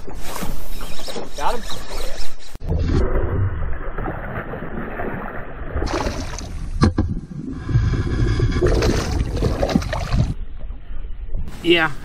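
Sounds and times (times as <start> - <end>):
fish thrashing and splashing: 3.0 - 6.6, 8.6 - 10.4.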